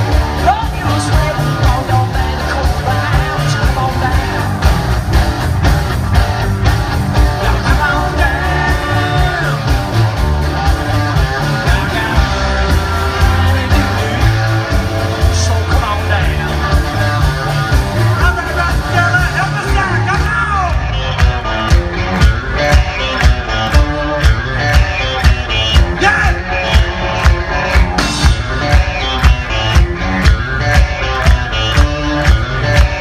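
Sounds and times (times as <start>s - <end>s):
live rock band playing: 0.0s - 33.0s
lead singer singing: 0.4s - 4.7s, 7.2s - 9.9s, 11.4s - 17.3s.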